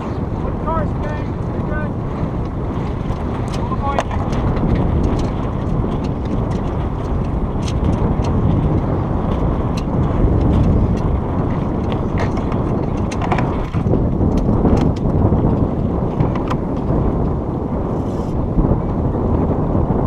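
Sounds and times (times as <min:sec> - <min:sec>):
wind rumble on microphone: 0:00.0 - 0:20.0
light clicks and ticks: 0:02.4 - 0:11.1.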